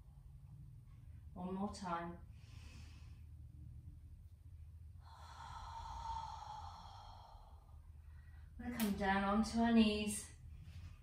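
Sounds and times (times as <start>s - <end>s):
low steady hum: 0.0s - 11.0s
woman breathing: 2.2s - 3.8s, 4.9s - 8.6s.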